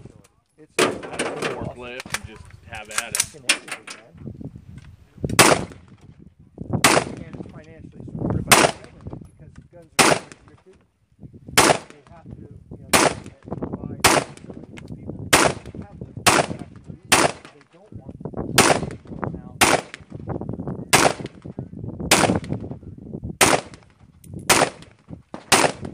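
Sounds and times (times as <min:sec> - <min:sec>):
rifle single shots: 0:05.3 - 0:06.0, 0:06.8 - 0:07.4, 0:08.5 - 0:09.0, 0:09.9 - 0:10.6, 0:11.6 - 0:12.1, 0:12.9 - 0:14.6, 0:15.3 - 0:17.8, 0:18.5 - 0:20.2, 0:20.9 - 0:22.7, 0:23.4 - 0:25.9.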